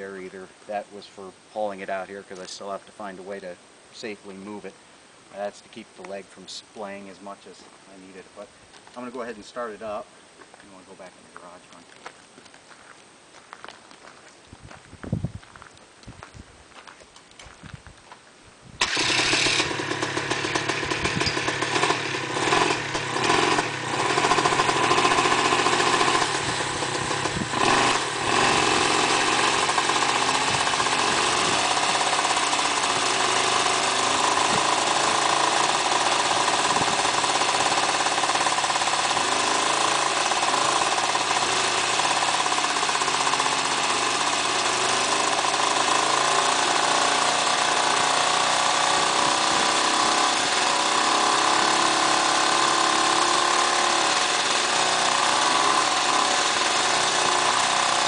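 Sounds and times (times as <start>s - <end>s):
helicopter engine running: 18.8s - 50.9s.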